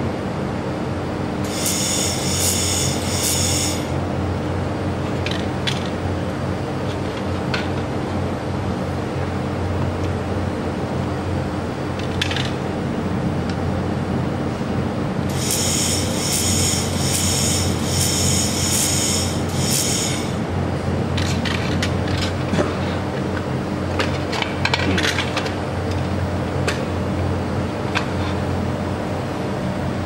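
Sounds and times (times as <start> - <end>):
steady machine hum: 0.0 - 30.0
crackling weld pulses: 1.5 - 4.0, 15.3 - 20.4.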